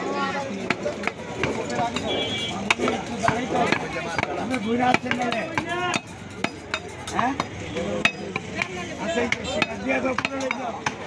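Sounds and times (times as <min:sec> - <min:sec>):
people talking: 0:00.0 - 0:11.0
cleaver knocking on chopping block: 0:02.7 - 0:11.0.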